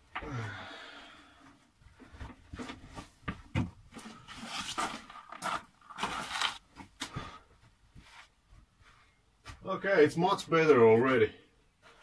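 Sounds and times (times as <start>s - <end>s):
scraping and rustling: 3.9s - 6.9s.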